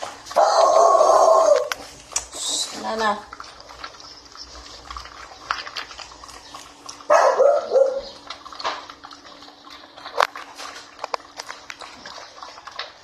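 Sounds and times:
puppy barking: 0:00.3 - 0:01.8, 0:07.0 - 0:08.3.

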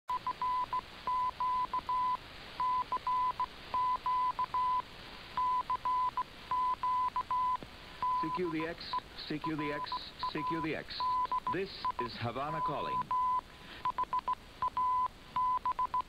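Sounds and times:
morse code beeps: 0:00.1 - 0:04.8, 0:05.4 - 0:16.0
shortwave radio hiss: 0:02.0 - 0:05.4, 0:07.3 - 0:14.6.

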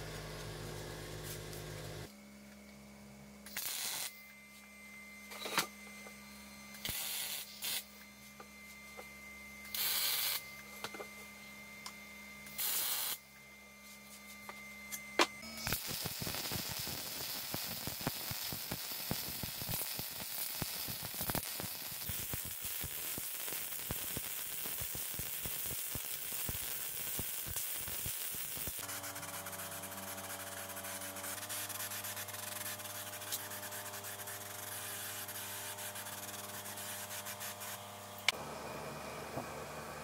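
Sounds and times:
welding arc crackling: 0:03.5 - 0:04.2, 0:06.8 - 0:08.0, 0:09.7 - 0:10.4, 0:12.5 - 0:13.2, 0:15.4 - 0:38.4.

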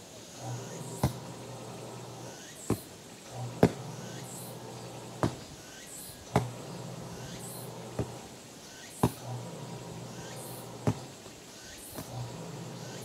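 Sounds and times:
soccer ball kicks on grass: 0:01.0 - 0:01.3, 0:03.6 - 0:04.0, 0:05.2 - 0:05.5, 0:06.3 - 0:06.6, 0:07.9 - 0:08.3, 0:09.0 - 0:09.3, 0:10.8 - 0:11.2.

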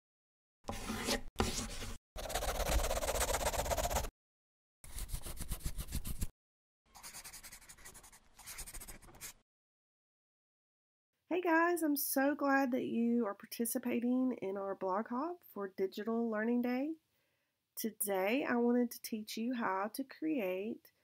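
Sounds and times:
pen scribbling on paper: 0:00.7 - 0:04.1, 0:04.9 - 0:06.3, 0:07.0 - 0:09.4.

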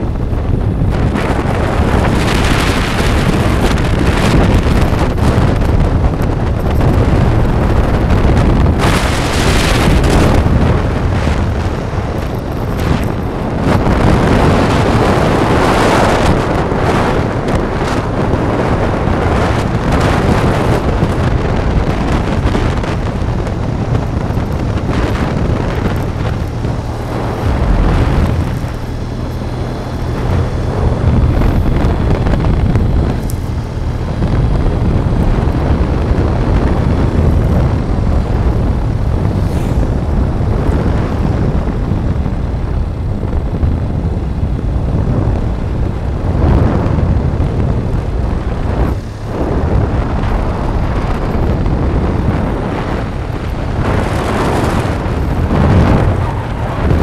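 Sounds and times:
engine and tyre rumble: 0:00.0 - 0:57.0
wind rushing over microphone: 0:00.0 - 0:57.0.

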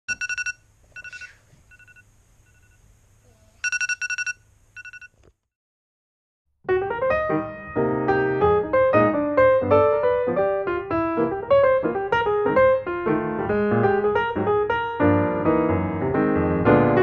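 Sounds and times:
alarm rapid high beeps: 0:00.1 - 0:02.7, 0:03.6 - 0:05.1
piano music: 0:06.6 - 0:17.0.

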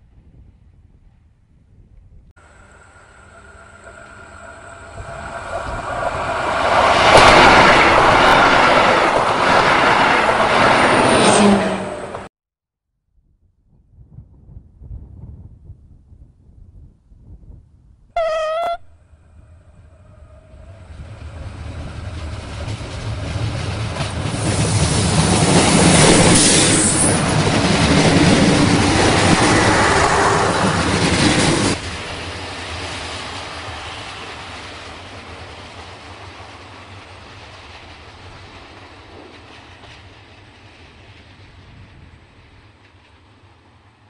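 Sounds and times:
train passing at speed: 0:02.4 - 0:12.3, 0:19.0 - 0:44.0
train horn toot: 0:18.2 - 0:21.0.

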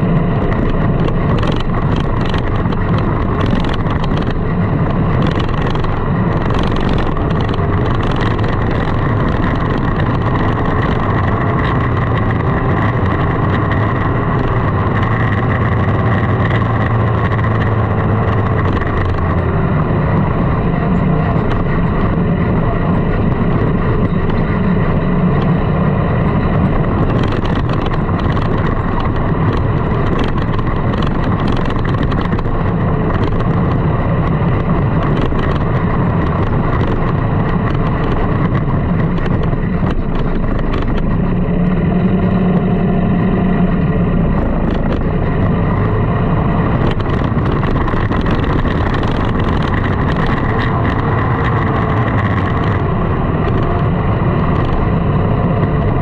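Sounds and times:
sand rail engine running: 0:00.0 - 0:56.0.

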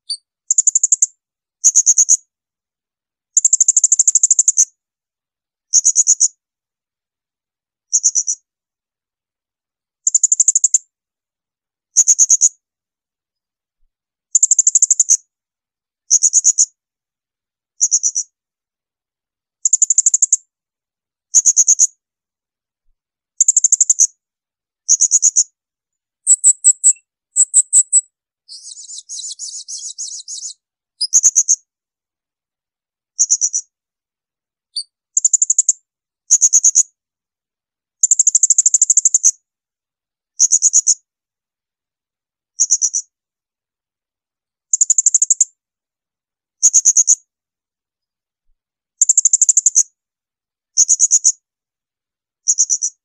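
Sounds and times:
buzzy bird trill: 0:26.3 - 0:31.6.

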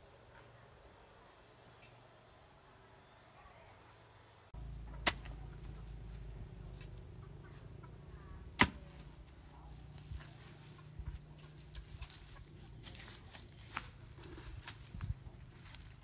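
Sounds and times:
steady low hum: 0:04.2 - 0:16.0
metal hoe chopping soil: 0:04.9 - 0:05.5, 0:08.4 - 0:09.1.

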